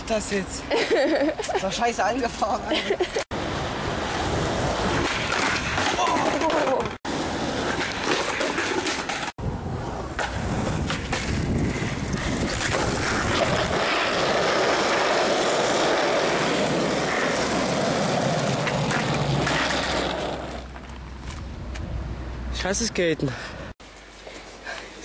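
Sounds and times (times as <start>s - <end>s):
skateboard wheels rolling on pavement: 1.0s - 22.6s
wind on microphone: 9.4s - 13.8s.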